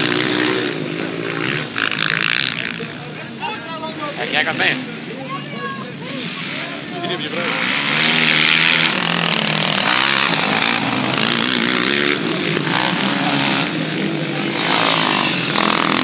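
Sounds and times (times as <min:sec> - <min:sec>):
quad engines revving: 0:00.0 - 0:16.0.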